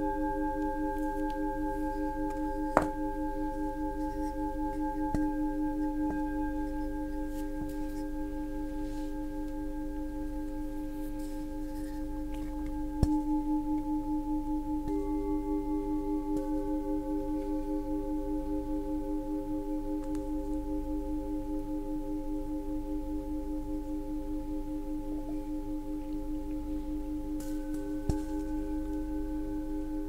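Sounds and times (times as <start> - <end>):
mallet striking bowl: 0.0 - 8.5, 9.5 - 20.7, 27.4 - 30.0
singing bowls ringing: 0.0 - 30.0.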